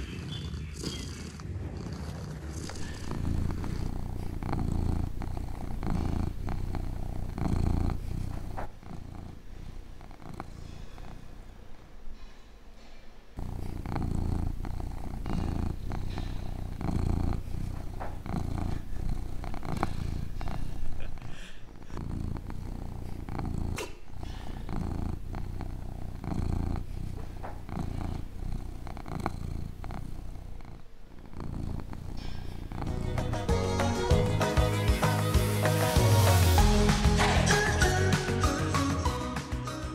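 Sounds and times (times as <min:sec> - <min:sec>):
cat purring: 0:00.0 - 0:36.8.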